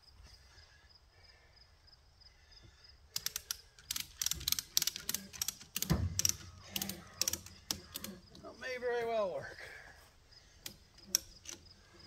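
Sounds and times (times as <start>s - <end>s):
hand ratchet clicking: 3.1s - 8.2s, 10.6s - 11.8s.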